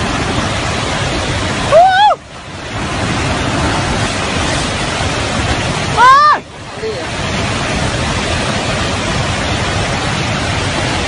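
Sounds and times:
rushing roar of mudflow: 0:00.0 - 0:11.0
person shouting: 0:06.0 - 0:06.4.

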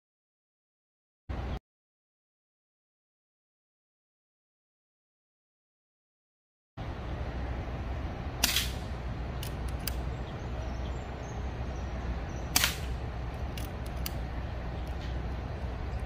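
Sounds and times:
low background rumble: 0:06.8 - 0:16.0
air rifle shots: 0:08.4 - 0:10.1, 0:12.5 - 0:14.3.

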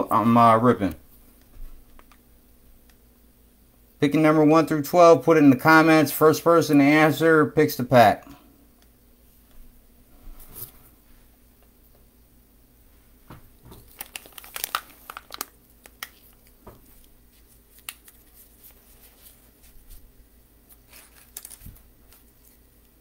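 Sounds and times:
plastic wrapping crinkling: 0:13.5 - 0:20.0, 0:20.6 - 0:23.0.

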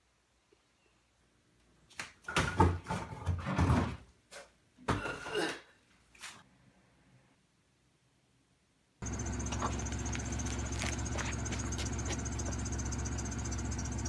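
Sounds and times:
freezer containers clattering: 0:02.2 - 0:04.1.

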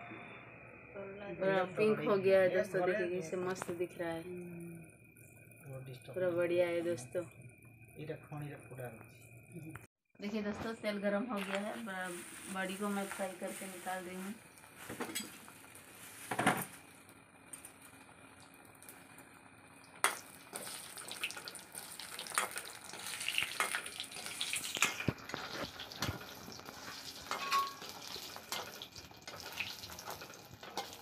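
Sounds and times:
fritters sizzling in oil: 0:11.4 - 0:31.0
metal spatula scraping wok: 0:22.3 - 0:31.0
sharp metal clank: 0:27.3 - 0:27.9.

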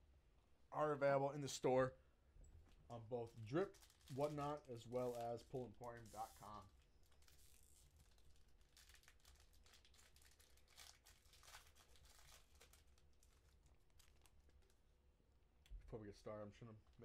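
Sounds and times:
wrappers crinkling and tearing: 0:03.2 - 0:14.8.

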